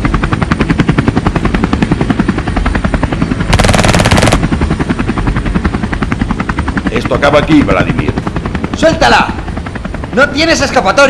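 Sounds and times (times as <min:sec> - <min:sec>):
helicopter rotor chopping: 0:00.0 - 0:11.0.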